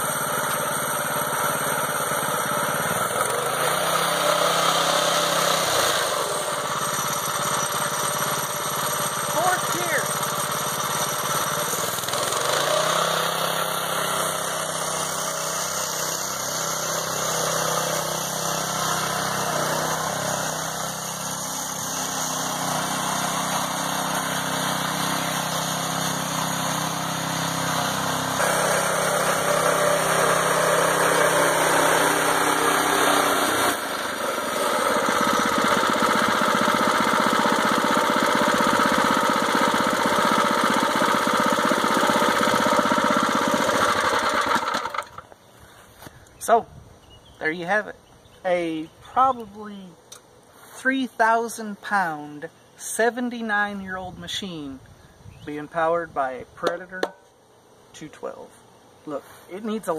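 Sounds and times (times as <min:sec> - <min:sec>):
tractor engine running: 0:00.0 - 0:45.4.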